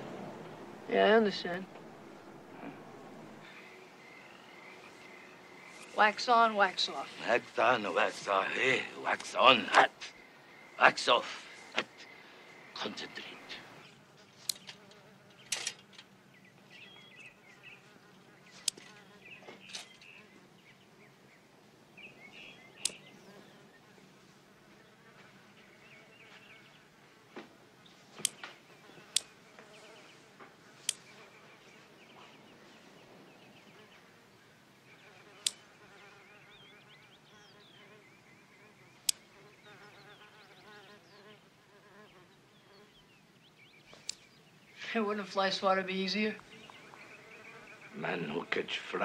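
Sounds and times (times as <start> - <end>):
housefly buzzing: 13.8 - 16.1, 16.8 - 20.4, 28.2 - 31.6, 34.8 - 43.0, 46.4 - 48.3.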